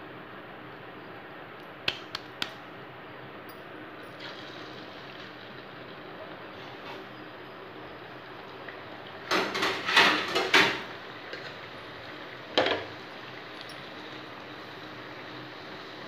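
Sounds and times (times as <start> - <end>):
oil sizzling while deep-frying: 3.9 - 16.0.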